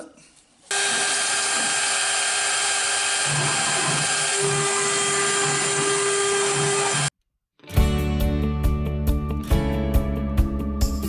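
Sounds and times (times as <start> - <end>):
router spindle high whine: 0.7 - 7.1.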